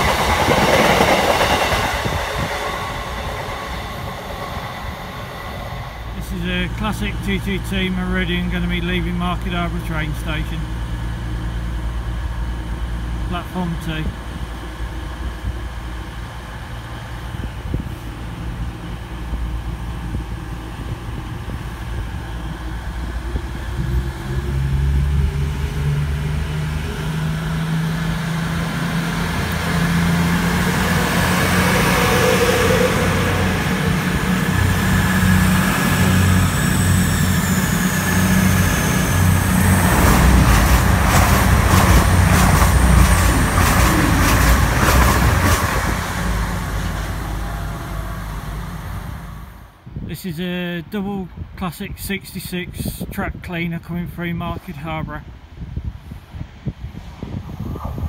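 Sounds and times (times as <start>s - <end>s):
train wheels clicking over rails: 0.0s - 7.7s, 14.2s - 49.2s
train diesel engines: 0.0s - 58.0s.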